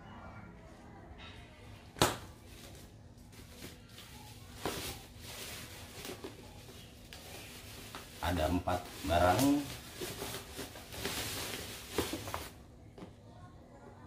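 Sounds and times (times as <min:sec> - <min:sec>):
packaging crinkling and rustling: 0:02.4 - 0:12.6.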